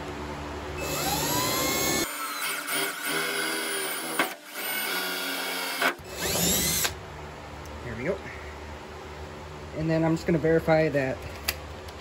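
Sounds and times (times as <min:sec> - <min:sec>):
cordless drill motor whine: 0:00.8 - 0:07.0.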